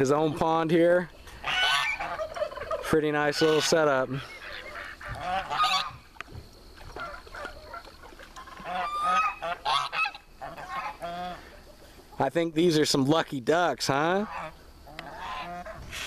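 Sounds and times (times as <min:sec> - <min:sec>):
geese honking: 0:00.0 - 0:06.2, 0:06.8 - 0:12.6, 0:13.8 - 0:16.0.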